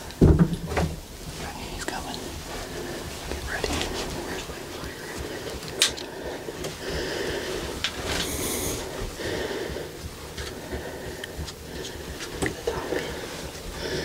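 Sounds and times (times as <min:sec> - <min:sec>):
rustling: 0:00.0 - 0:14.0
person breathing: 0:02.3 - 0:14.0.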